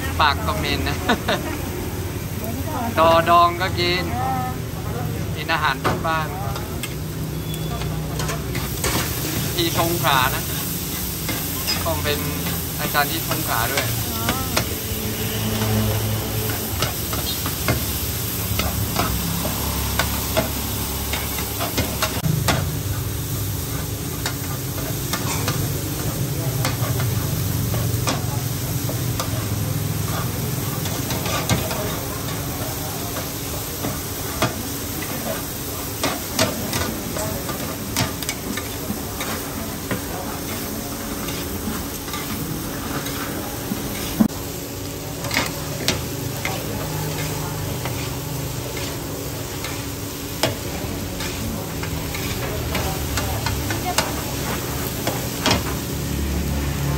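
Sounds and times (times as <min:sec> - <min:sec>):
omelette sizzling in oil: 0:06.5 - 0:56.9
metal spatulas scraping a pan: 0:25.1 - 0:25.6, 0:46.8 - 0:49.8.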